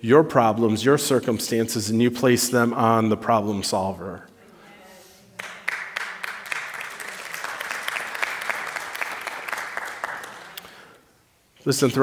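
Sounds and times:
crowd applauding: 0:05.4 - 0:11.0.

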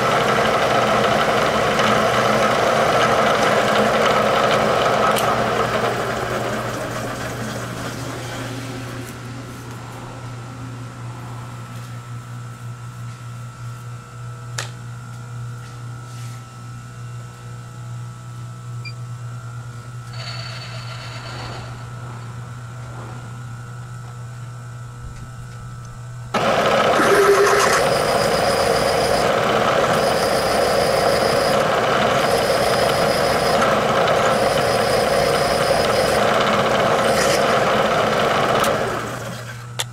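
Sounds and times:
drill cutting metal: 0:20.2 - 0:21.7, 0:26.5 - 0:37.7
spindle humming: 0:26.4 - 0:37.4
loud machining noise: 0:26.4 - 0:39.4.

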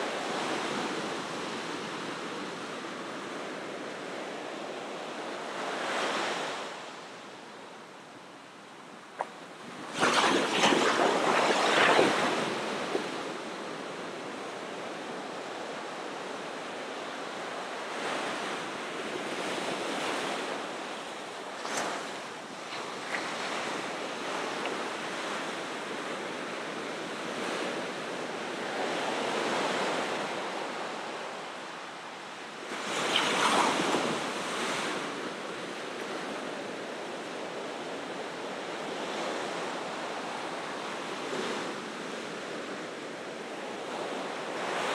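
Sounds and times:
ocean waves breaking: 0:09.1 - 0:15.3, 0:19.3 - 0:25.5, 0:32.7 - 0:35.6.

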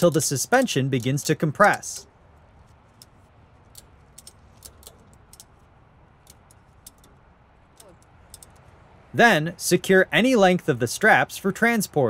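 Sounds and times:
ratchet strap clicks: 0:00.0 - 0:08.8.

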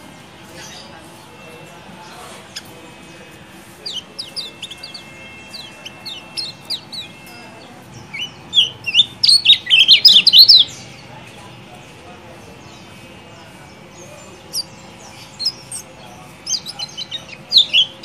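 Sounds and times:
bird chirping: 0:03.7 - 0:11.1, 0:13.7 - 0:18.0.

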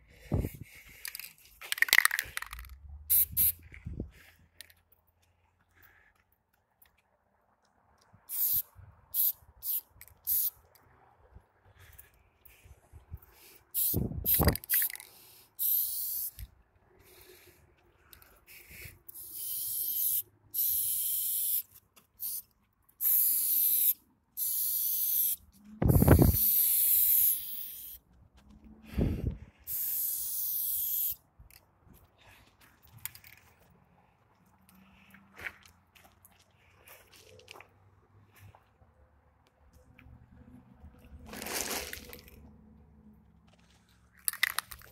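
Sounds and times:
spray can hissing: 0:01.7 - 0:03.6, 0:08.3 - 0:10.5, 0:13.8 - 0:16.4, 0:18.7 - 0:22.4, 0:23.0 - 0:28.0, 0:29.7 - 0:31.2.

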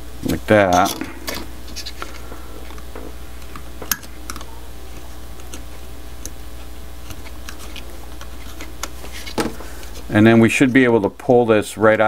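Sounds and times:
steady low hum: 0:00.0 - 0:12.0
knife blade scratching plastic: 0:00.6 - 0:02.8, 0:06.6 - 0:10.1.

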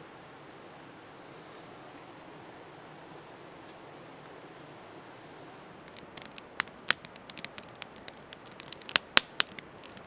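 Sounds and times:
campfire crackling and popping: 0:05.8 - 0:10.0.

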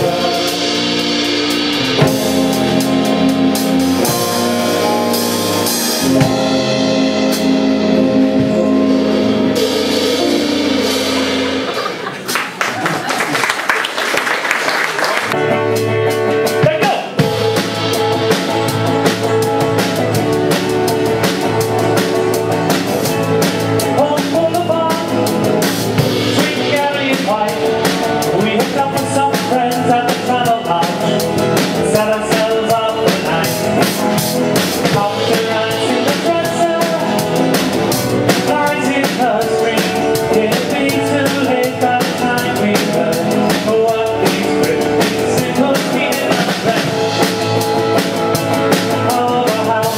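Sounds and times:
driving drum beat: 0:00.0 - 0:49.9
live band playing: 0:00.0 - 0:49.9
strummed acoustic guitars: 0:15.3 - 0:49.9.

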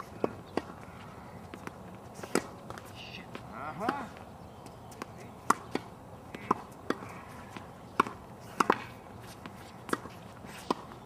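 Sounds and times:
tennis ball bouncing on hard court: 0:01.4 - 0:02.9, 0:03.8 - 0:11.0
racket striking tennis ball: 0:01.6 - 0:02.8, 0:05.0 - 0:11.0.

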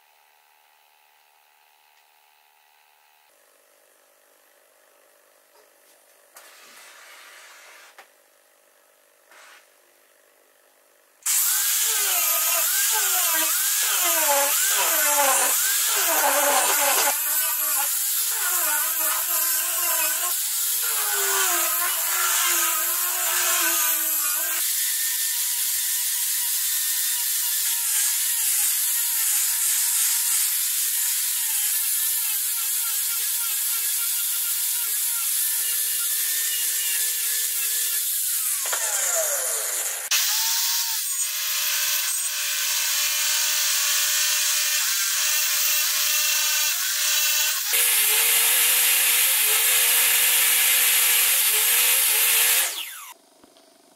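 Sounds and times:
power sander on wood: 0:11.3 - 0:53.2.

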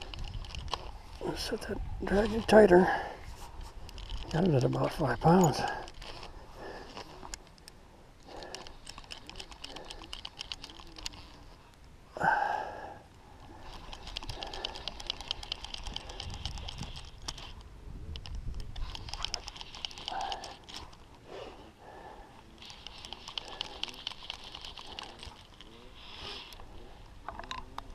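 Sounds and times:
fly reel clicking: 0:18.6 - 0:21.0.

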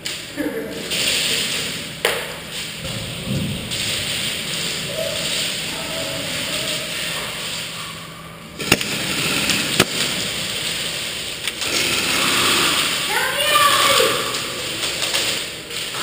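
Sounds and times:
din of large hall: 0:00.0 - 0:16.0
sharp gunshot cracks: 0:09.8 - 0:10.1.

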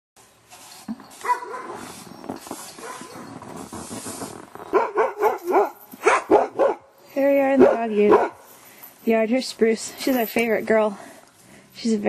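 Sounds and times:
dogs barking: 0:01.2 - 0:01.8, 0:04.7 - 0:06.9, 0:07.6 - 0:08.5.

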